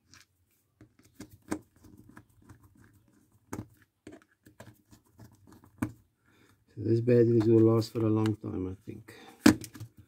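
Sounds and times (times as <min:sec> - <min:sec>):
light scratching and handling noise: 0:00.0 - 0:10.0.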